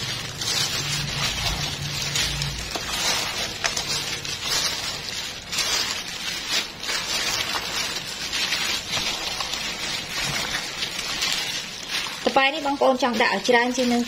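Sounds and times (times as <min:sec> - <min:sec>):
gloved hand squishing fish and salt: 0:00.0 - 0:14.0.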